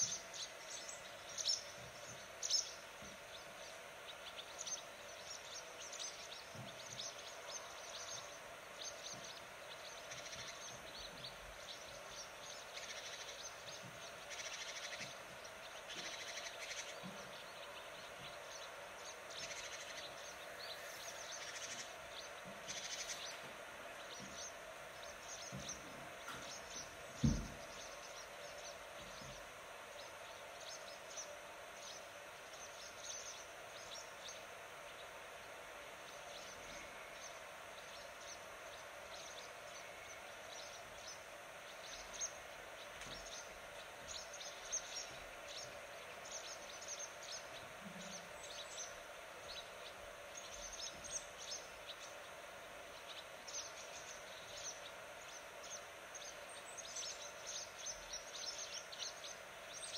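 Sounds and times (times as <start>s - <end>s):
small birds chirping: 0.0s - 59.9s
steady background hiss: 0.0s - 59.9s
dull thump: 27.2s - 27.6s.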